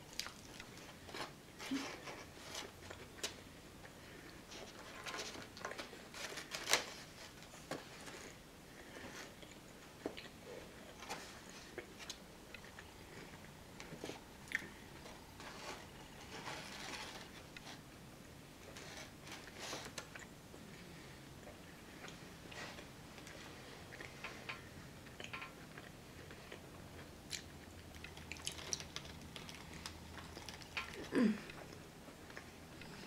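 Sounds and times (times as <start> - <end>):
chewing and wet mouth noises: 0.0 - 1.1, 8.2 - 14.9, 19.9 - 33.0.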